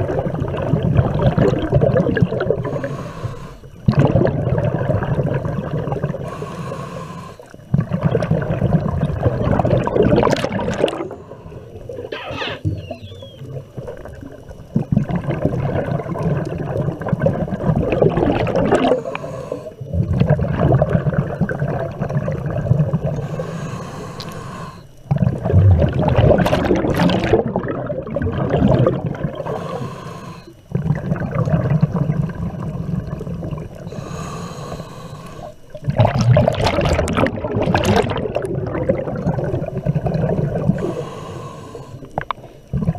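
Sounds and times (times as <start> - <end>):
gurgling exhaled bubbles: 0.0 - 3.0, 3.8 - 6.5, 7.6 - 23.8, 25.1 - 29.9, 30.7 - 34.8, 35.7 - 41.2, 42.0 - 42.9
diver breathing through regulator: 2.5 - 3.8, 6.1 - 7.6, 18.8 - 19.9, 23.1 - 25.0, 29.4 - 30.7, 33.9 - 35.7, 40.6 - 42.7.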